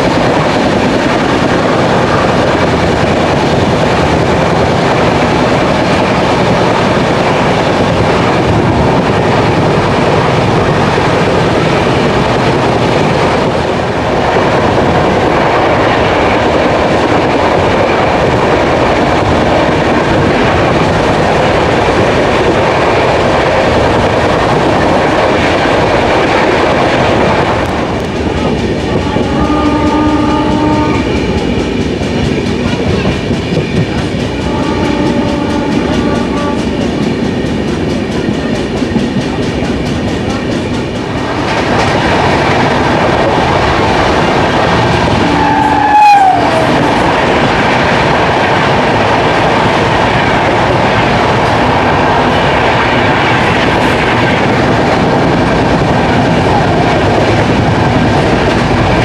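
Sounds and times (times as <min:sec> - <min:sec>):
wind rushing: 0:00.0 - 0:34.4
train wheels rushing on rails: 0:00.0 - 0:59.0
train horn blasts: 0:29.0 - 0:31.3, 0:34.4 - 0:36.9, 0:45.2 - 0:46.9.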